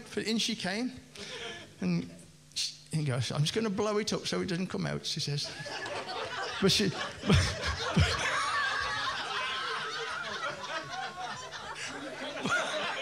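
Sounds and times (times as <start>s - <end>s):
audience laughing: 5.5s - 13.0s.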